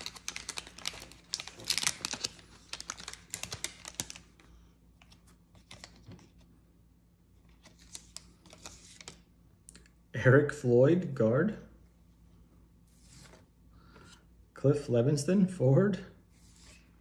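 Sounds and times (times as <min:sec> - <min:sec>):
wax paper wrapper crinkling: 0:00.0 - 0:04.5.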